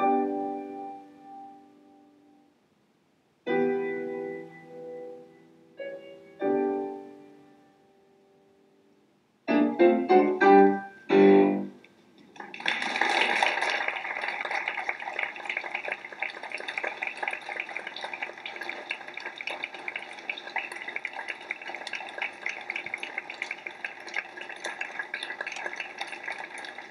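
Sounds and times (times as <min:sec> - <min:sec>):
audience applause: 0:12.3 - 0:26.9.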